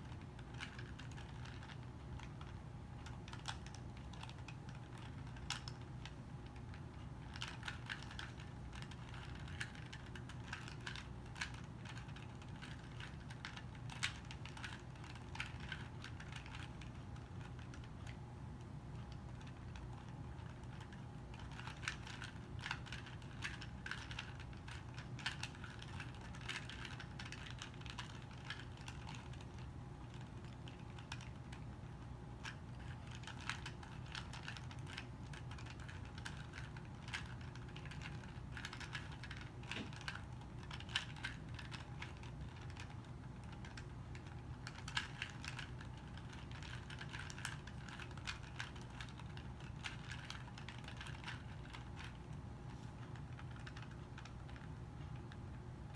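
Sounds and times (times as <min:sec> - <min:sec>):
steady low hum: 0:00.0 - 0:55.9.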